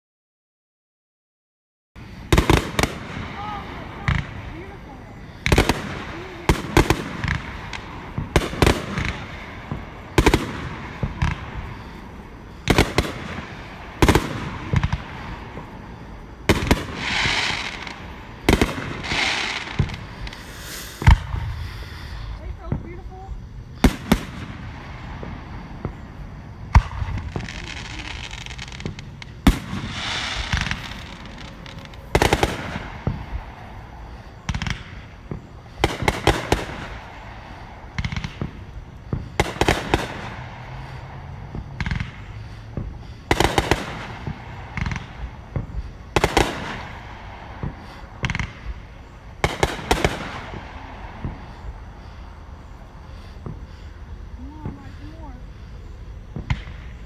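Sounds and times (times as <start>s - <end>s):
fireworks bangs: 2.0s - 57.0s
fireworks crackling and hissing: 2.0s - 57.0s.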